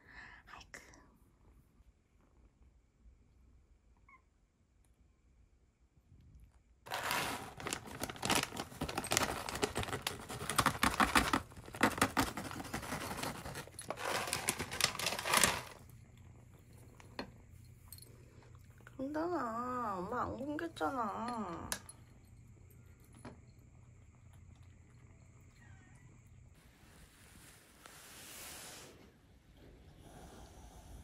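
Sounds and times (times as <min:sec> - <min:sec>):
crinkling and rustling: 0:06.9 - 0:16.0.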